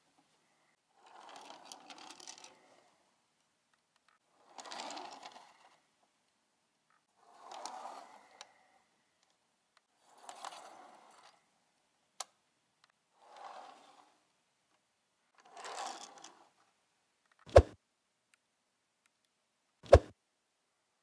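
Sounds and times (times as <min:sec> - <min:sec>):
toy cars scraping on plastic: 0:01.0 - 0:02.9, 0:04.2 - 0:05.9, 0:07.1 - 0:08.8, 0:10.0 - 0:11.5, 0:13.2 - 0:14.2, 0:15.3 - 0:16.6
sharp thumps: 0:17.5 - 0:17.8, 0:19.8 - 0:20.1.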